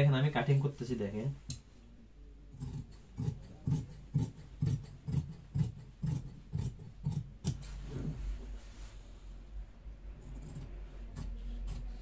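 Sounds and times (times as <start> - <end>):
shears snipping fabric: 2.6 - 7.8.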